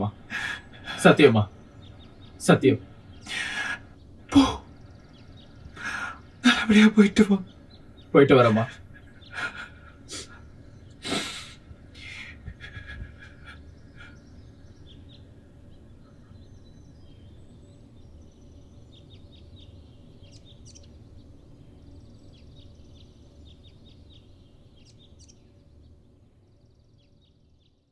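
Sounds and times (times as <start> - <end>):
low steady background hum: 0.0 - 27.9
small birds chirping: 0.0 - 27.9.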